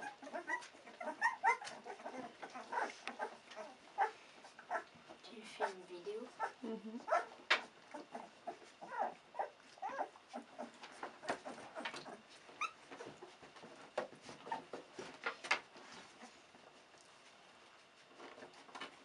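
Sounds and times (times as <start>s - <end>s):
puppies whimpering: 0.0s - 13.4s.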